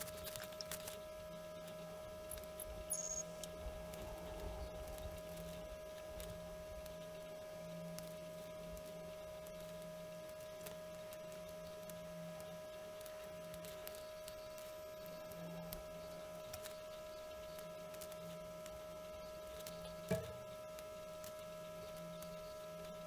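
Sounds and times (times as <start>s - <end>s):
high-pitched electrical hum: 0.0s - 23.0s
lower pulsing hum: 0.0s - 23.0s
faint clicks: 7.9s - 16.9s.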